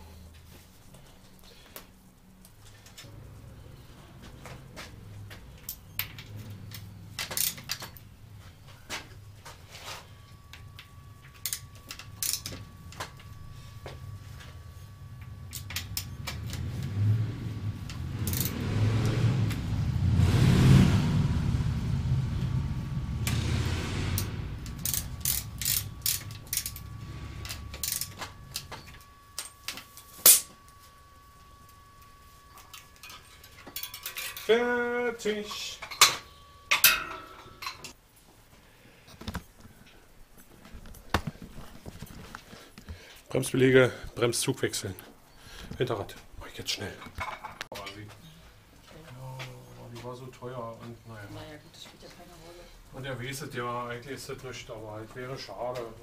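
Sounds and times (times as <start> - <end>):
freewheel hub ratcheting: 5.6 - 8.1, 10.5 - 13.2, 15.2 - 19.8, 22.4 - 30.4, 32.7 - 34.5
low rumble: 7.8 - 30.1
clicks on bicycle wheel: 17.9 - 18.6, 24.2 - 28.8.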